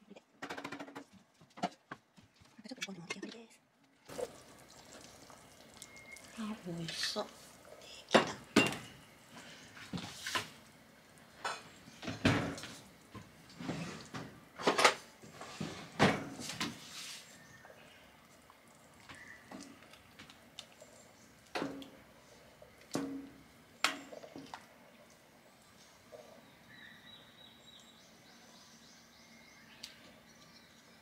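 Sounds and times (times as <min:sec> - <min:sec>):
pot and ladle knocks and clinks: 0:08.2 - 0:08.9.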